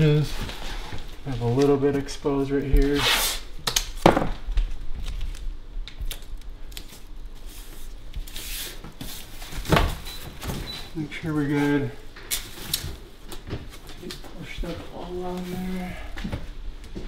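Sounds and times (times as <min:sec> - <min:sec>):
plastic film rustling: 0:00.0 - 0:03.0, 0:04.6 - 0:09.7.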